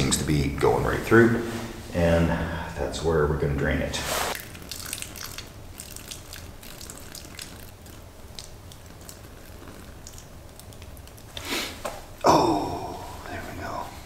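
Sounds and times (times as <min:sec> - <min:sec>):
water trickling and dripping on rock: 0:04.4 - 0:11.4.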